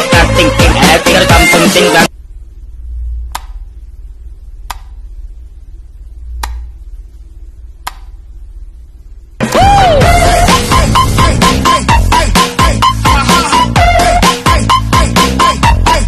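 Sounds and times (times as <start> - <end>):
dance music: 0.0 - 2.1, 9.4 - 16.0
low hum: 2.1 - 13.2
light switch clicks: 3.3 - 3.6, 4.6 - 5.0, 6.4 - 6.8, 7.8 - 8.2.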